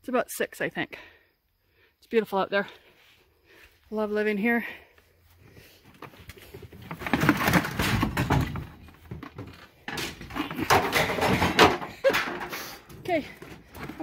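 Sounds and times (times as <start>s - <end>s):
plastic buckets rattling on cart: 6.1s - 14.0s.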